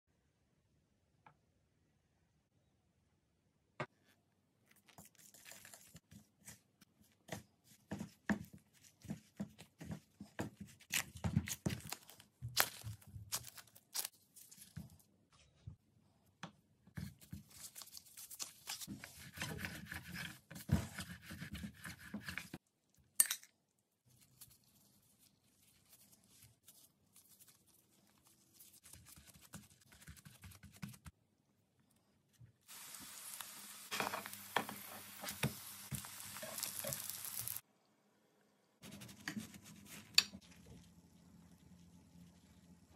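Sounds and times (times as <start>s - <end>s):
dough tearing and rustling: 4.7s - 15.1s, 17.0s - 21.1s, 24.0s - 30.7s
oil sizzling in a frying pan: 32.7s - 37.6s.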